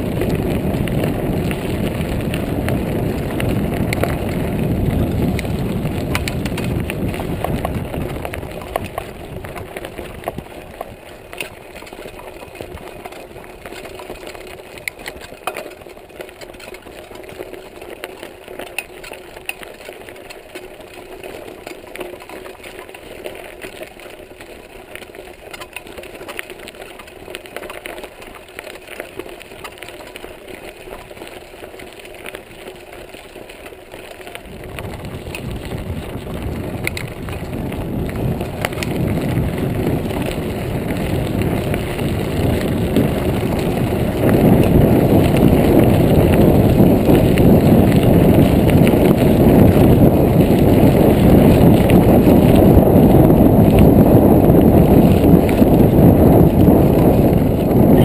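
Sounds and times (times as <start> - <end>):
wind buffeting microphone: 0.0 - 15.0, 34.3 - 58.0
bike tyres rumbling on gravel: 0.0 - 58.0
bike rattling clicks: 0.1 - 58.0.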